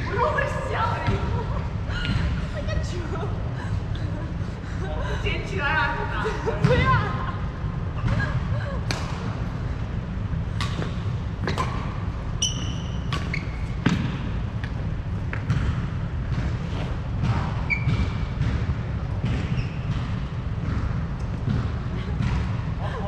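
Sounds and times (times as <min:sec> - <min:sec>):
racket hitting shuttlecock: 0:10.6 - 0:22.6
shoes squeaking on floor: 0:12.4 - 0:13.9, 0:17.6 - 0:18.4, 0:19.3 - 0:19.9.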